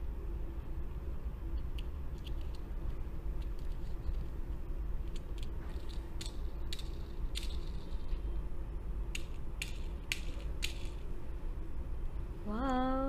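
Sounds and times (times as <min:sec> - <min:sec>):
toy car clicking and rattling: 0:05.0 - 0:08.1, 0:09.2 - 0:11.0.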